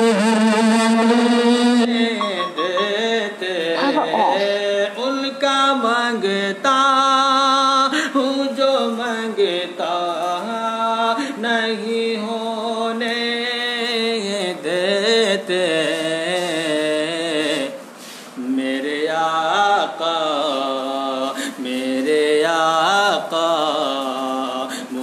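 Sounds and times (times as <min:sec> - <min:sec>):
man singing solo: 0:01.3 - 0:04.8.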